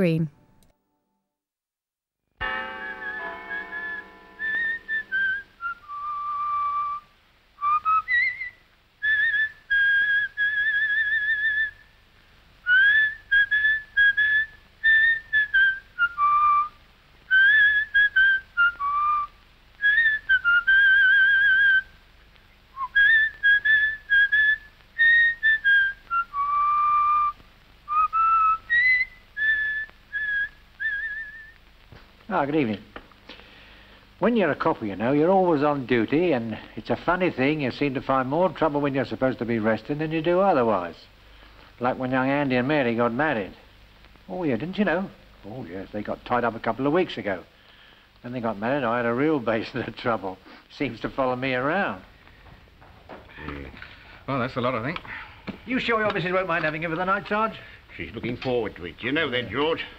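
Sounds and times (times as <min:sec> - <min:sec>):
person whistling a melody: 0:02.8 - 0:07.0.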